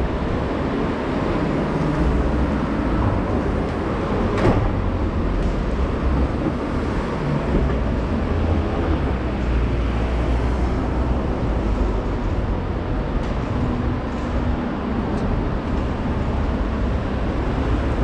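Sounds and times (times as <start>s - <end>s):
vehicle traffic: 0.0s - 18.0s.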